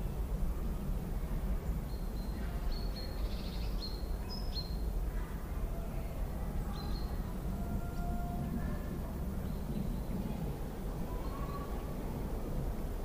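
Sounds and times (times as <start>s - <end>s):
small birds chirping: 1.6s - 5.3s, 9.4s - 12.1s.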